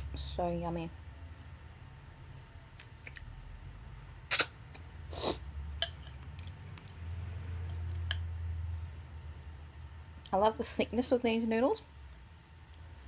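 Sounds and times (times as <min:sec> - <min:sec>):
low steady hum: 0:00.0 - 0:13.0
mouth smacks and clicks: 0:02.8 - 0:03.3, 0:04.3 - 0:04.6.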